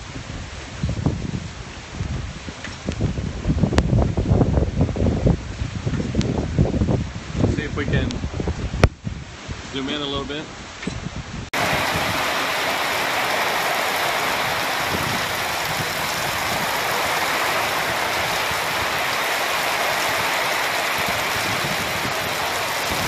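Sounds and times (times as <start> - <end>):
heavy rain pouring: 11.6 - 23.0.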